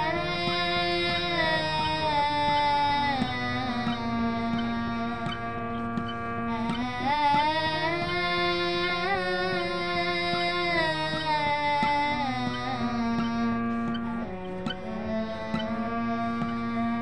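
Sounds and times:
harmonium: 0.0 - 17.0
woman singing: 0.0 - 17.0.

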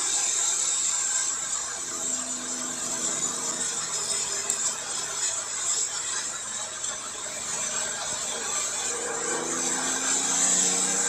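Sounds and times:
tyre spray and road noise: 0.0 - 11.0.

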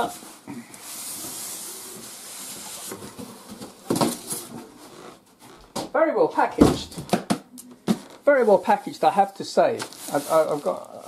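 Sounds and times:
knocks and rustles: 2.8 - 5.9.

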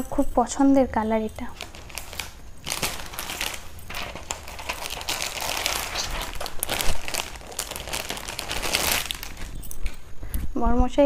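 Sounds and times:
plastic packaging crinkling: 1.4 - 10.0.

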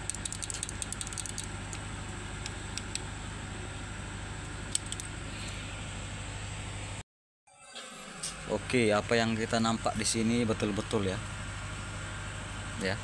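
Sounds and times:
metallic clicks and rattles: 0.0 - 1.5
low mechanical hum: 0.0 - 7.0, 7.8 - 13.0.

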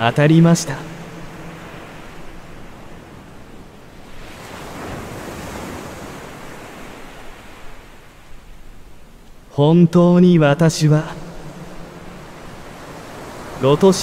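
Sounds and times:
ocean waves washing: 0.0 - 14.0.

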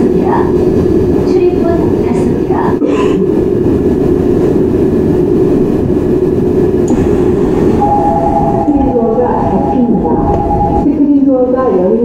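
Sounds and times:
electric train interior rumble: 0.0 - 12.0
high two-note tone: 7.8 - 10.9.

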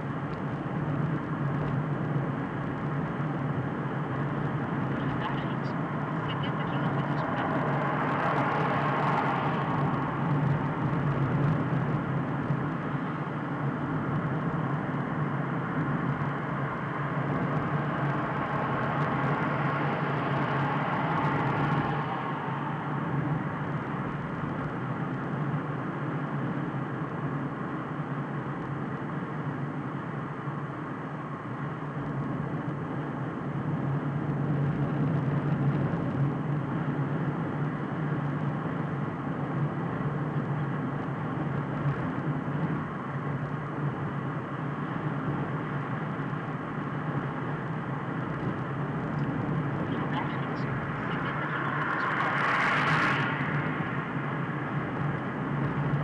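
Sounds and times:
car engine and tyre hum: 0.0 - 56.0.

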